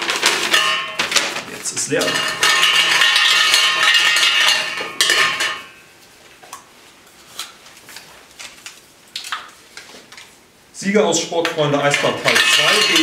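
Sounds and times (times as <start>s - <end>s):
lots clattering in metal cup: 0.0s - 5.8s, 11.6s - 13.0s.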